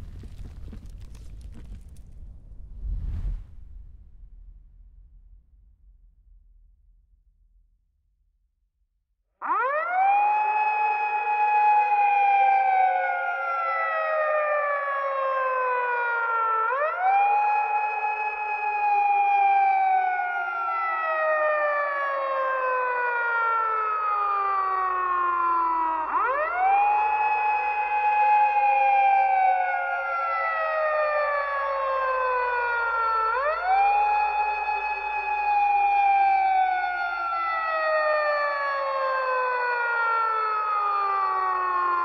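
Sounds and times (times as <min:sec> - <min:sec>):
siren wailing: 0:09.4 - 0:42.0.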